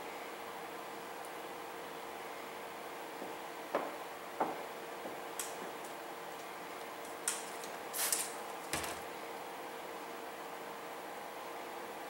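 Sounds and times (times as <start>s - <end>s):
steady low hiss: 0.0s - 12.0s
plastic film crinkling and clicking: 5.4s - 9.0s.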